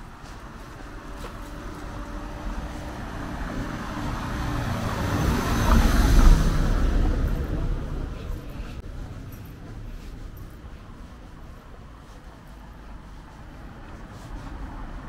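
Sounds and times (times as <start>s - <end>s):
vehicle passing by: 0.2s - 15.0s.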